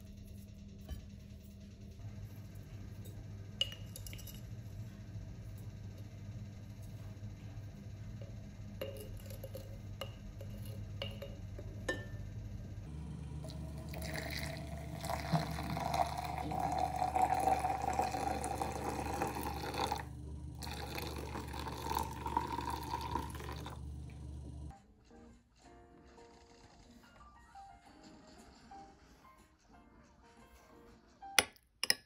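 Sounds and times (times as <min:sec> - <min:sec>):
water running: 0:12.9 - 0:24.7.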